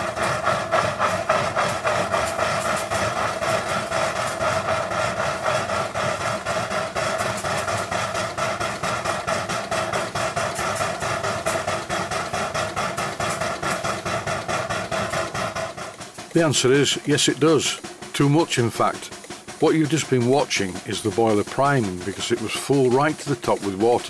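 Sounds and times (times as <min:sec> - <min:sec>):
steam engine exhaust chuffing: 0:00.0 - 0:24.0.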